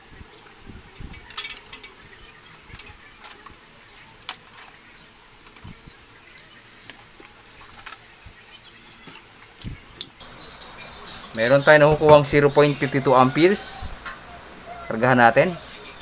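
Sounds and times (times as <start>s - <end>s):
compressor humming: 9.6s - 16.0s.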